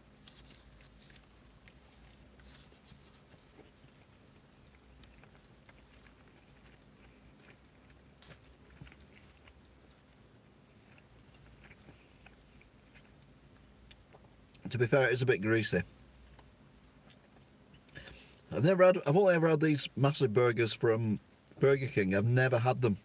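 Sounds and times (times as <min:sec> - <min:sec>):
chewing with mouth closed: 0:00.1 - 0:14.7, 0:16.3 - 0:18.5.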